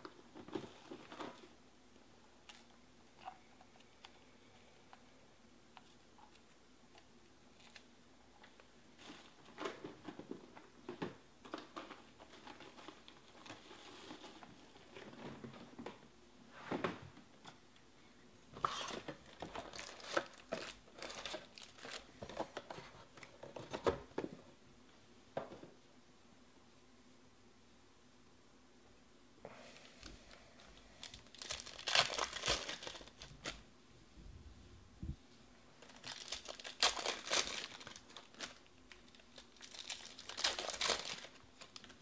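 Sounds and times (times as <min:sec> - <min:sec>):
plastic wrap crinkling and tearing: 0:18.6 - 0:23.8, 0:30.7 - 0:33.6, 0:35.8 - 0:42.0.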